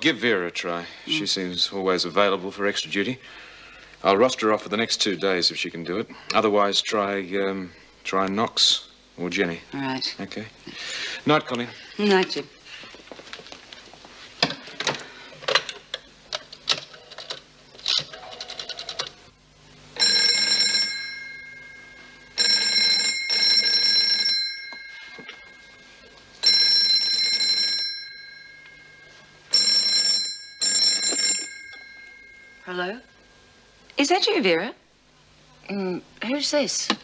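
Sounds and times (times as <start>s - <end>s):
telephone bell ringing: 20.0s - 33.2s.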